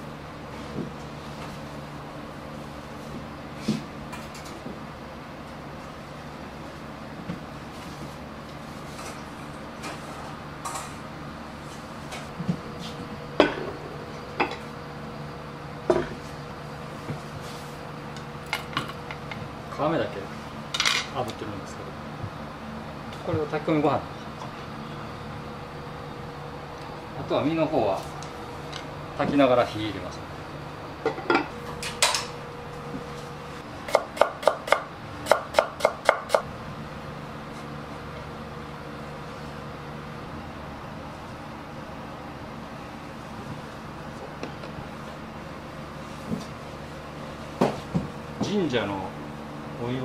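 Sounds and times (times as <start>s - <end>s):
steady low hum: 0.0s - 50.0s
knife chopping on wooden board: 33.9s - 36.5s.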